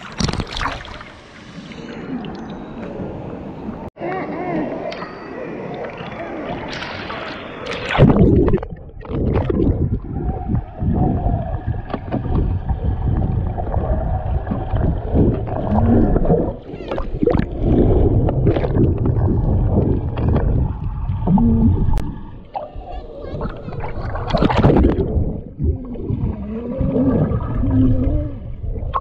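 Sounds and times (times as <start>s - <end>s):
water splash: 0.0s - 1.7s, 5.9s - 22.2s, 23.8s - 25.5s
underwater rumble and bubbles: 5.7s - 29.0s.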